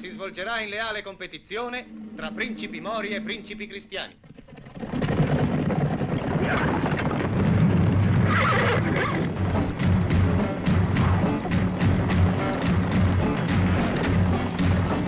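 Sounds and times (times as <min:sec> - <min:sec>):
music: 0:00.0 - 0:03.9, 0:07.3 - 0:15.0
horse hooves galloping: 0:04.2 - 0:15.0.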